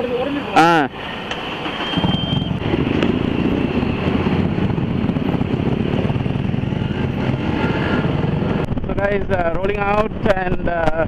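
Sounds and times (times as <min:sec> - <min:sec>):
motorcycle engine running: 0:01.9 - 0:10.5.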